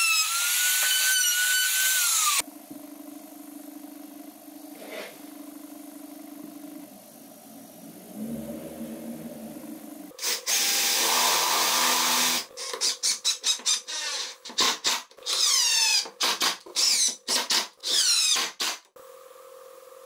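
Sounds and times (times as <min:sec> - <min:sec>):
power driver driving screws: 0:10.2 - 0:18.9.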